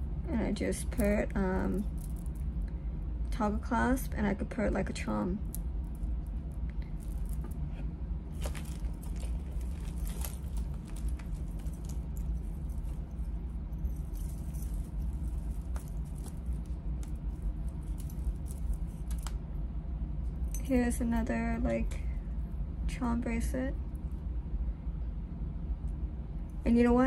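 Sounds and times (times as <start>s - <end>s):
steady low hum: 0.0s - 27.0s
metal chains jingling: 8.4s - 16.7s, 17.3s - 19.0s.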